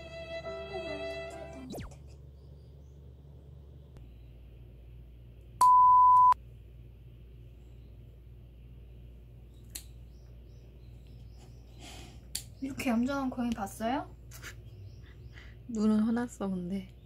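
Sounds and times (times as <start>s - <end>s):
pure-toned beep: 5.6s - 6.4s.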